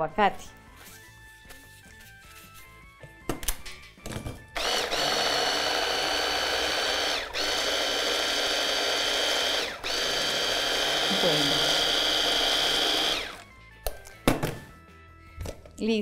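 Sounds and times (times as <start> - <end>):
food processor motor whining: 4.6 - 13.5.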